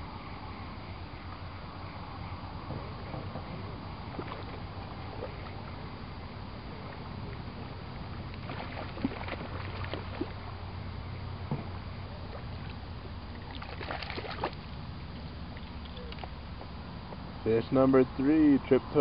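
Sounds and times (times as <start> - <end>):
fish splashing in water: 4.0 - 6.0, 6.6 - 10.6, 12.2 - 16.5.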